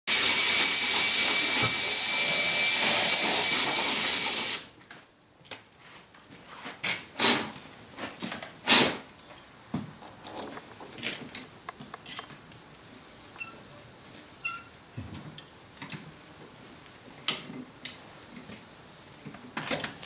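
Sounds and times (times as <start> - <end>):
cordless drill running: 0.1 - 4.7
metallic clicks and scrapes: 10.0 - 12.6.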